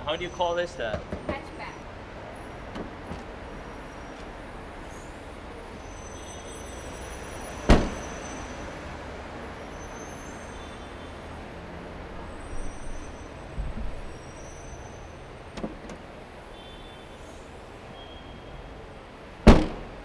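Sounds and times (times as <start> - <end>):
car hatch slamming shut: 7.7 - 8.1, 19.5 - 20.0.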